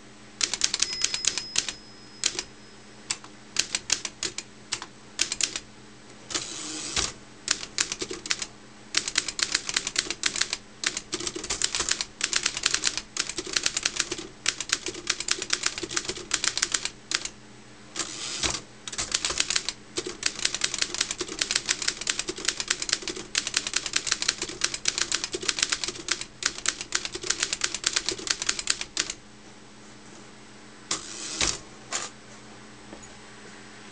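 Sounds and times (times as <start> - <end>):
typewriter keystroke clacks: 0.4 - 2.4, 3.6 - 5.6, 7.0 - 17.3, 18.4 - 29.2.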